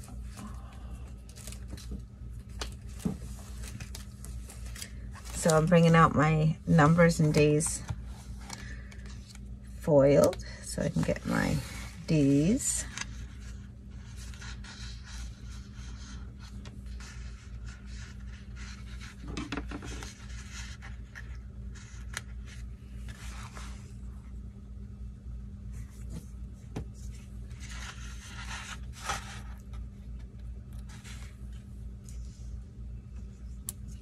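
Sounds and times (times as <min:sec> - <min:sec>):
low steady hum: 0:00.0 - 0:34.0
paper pages rustling and scraping: 0:01.2 - 0:06.0, 0:11.0 - 0:24.1, 0:25.7 - 0:32.6.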